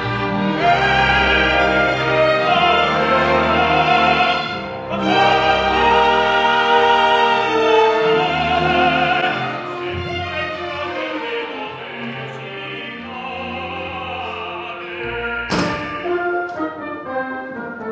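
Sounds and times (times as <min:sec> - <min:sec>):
orchestra playing: 0:00.0 - 0:17.9
sharp knock: 0:15.5 - 0:16.0.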